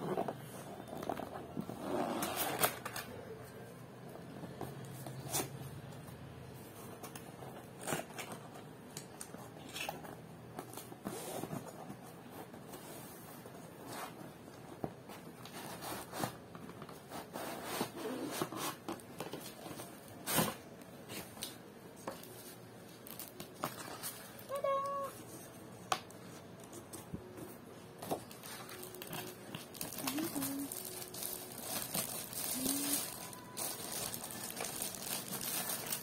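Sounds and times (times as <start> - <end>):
cardboard rustling and scraping: 0.0 - 3.0, 9.7 - 21.4.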